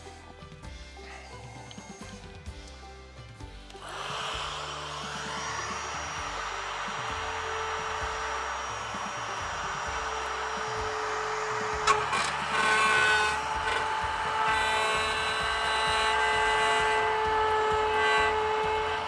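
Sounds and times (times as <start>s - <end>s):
cutout tool whining: 3.7s - 19.0s.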